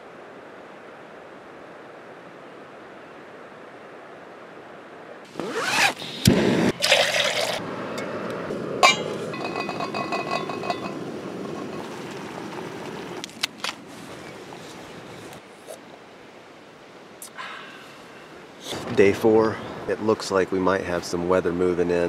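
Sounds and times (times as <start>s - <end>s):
contents pouring into mug: 6.8s - 7.6s
clinks against mug: 8.8s - 11.0s.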